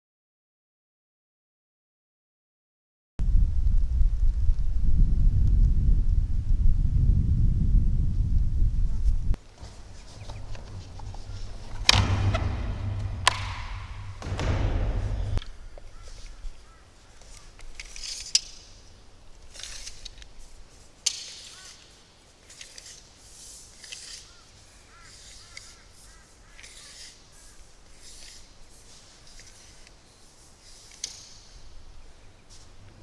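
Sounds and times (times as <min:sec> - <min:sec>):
plastic lid scraping and rumbling: 0:09.6 - 0:15.4
sharp knock: 0:09.6 - 0:15.4
faint bird calls: 0:14.9 - 0:17.6, 0:24.0 - 0:27.8
tape measure clicks and rattles: 0:17.3 - 0:18.9, 0:19.5 - 0:20.3.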